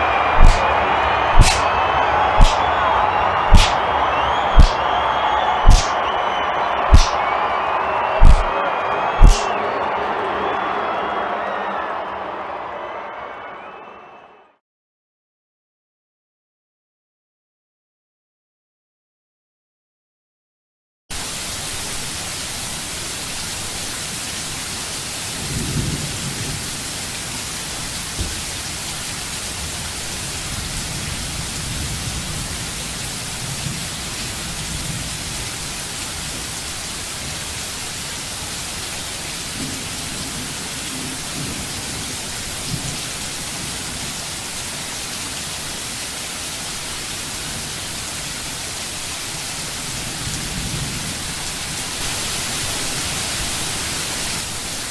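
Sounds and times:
rain falling: 0.0s - 9.6s, 21.1s - 54.9s.

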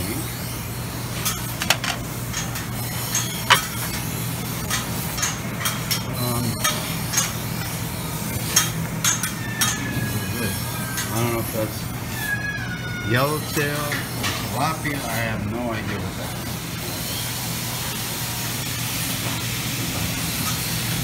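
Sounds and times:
plates and utensils clinking: 1.2s - 7.3s.

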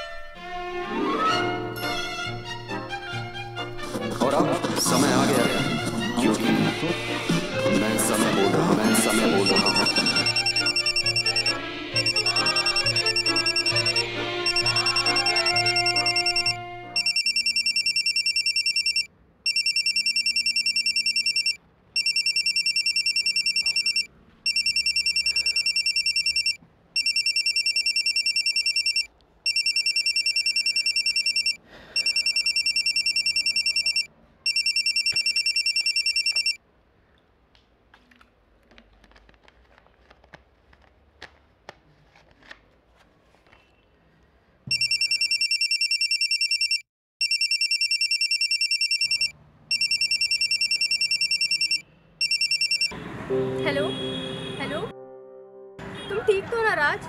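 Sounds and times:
electronic phone ringtone: 8.9s - 36.6s, 44.7s - 53.0s.

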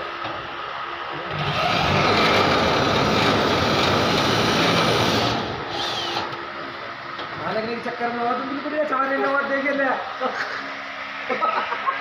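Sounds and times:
electric drill running: 1.3s - 6.4s.

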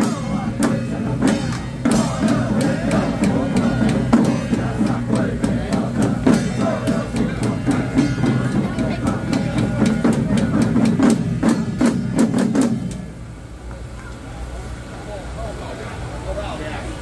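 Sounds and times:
drum and gong strikes: 0.0s - 13.5s
low percussion accompaniment: 0.0s - 14.1s.

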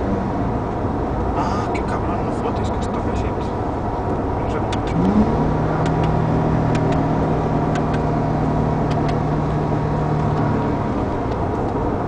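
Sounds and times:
car engine drone: 0.0s - 12.0s
road and tyre noise: 0.0s - 12.0s.

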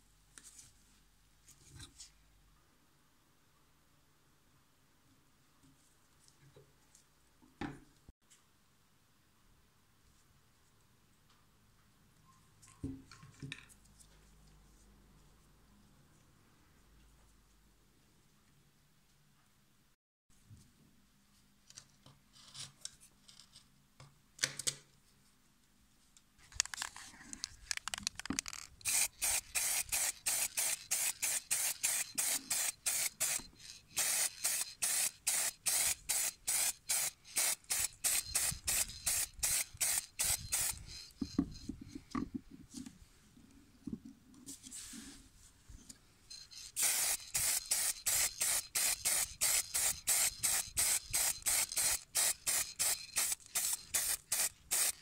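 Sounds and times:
spray paint hissing in short bursts: 28.8s - 41.3s, 46.3s - 55.0s.

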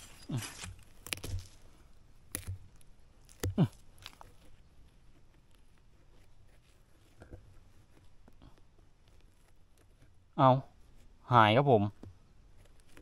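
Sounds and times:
hand tool chopping into soil: 0.0s - 1.6s, 2.2s - 4.3s.

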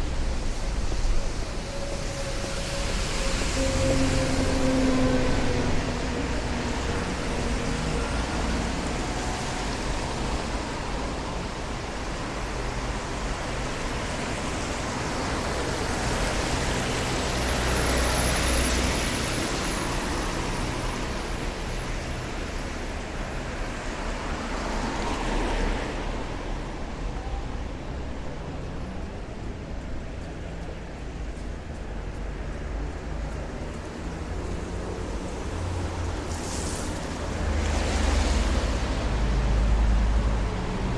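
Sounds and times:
tyres hissing on wet road: 0.0s - 28.1s, 32.4s - 40.9s
vehicle engines: 0.0s - 40.9s.

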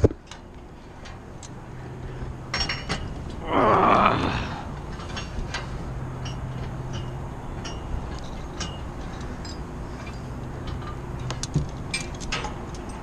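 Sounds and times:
metal hardware clinking: 2.5s - 3.3s, 4.8s - 13.0s.

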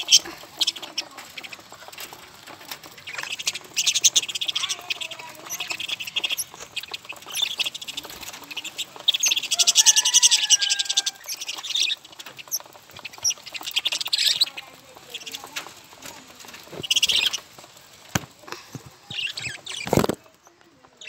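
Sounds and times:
budgerigars chattering: 0.0s - 20.2s.

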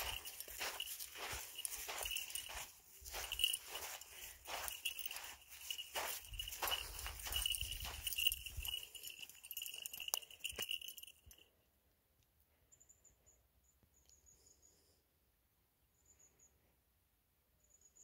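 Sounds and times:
footsteps crunching on gravel: 0.0s - 11.1s
high jingling: 0.0s - 11.6s
faint high bird chirps: 12.6s - 15.0s, 15.9s - 16.7s, 17.6s - 18.0s.

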